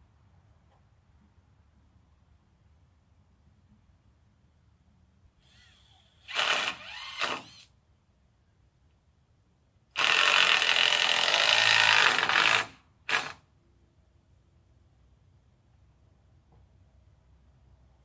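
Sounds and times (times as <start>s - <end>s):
power drill whining: 5.4s - 7.7s, 10.0s - 13.3s.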